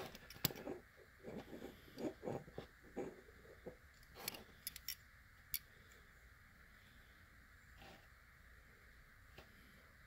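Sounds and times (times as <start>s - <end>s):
soft rubbing sounds: 0.0s - 4.6s.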